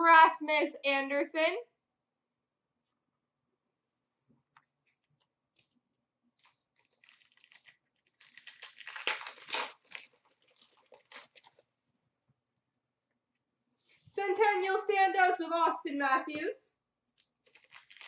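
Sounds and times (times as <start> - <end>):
foil wrapper tearing and crinkling: 6.4 - 11.7, 17.2 - 18.0.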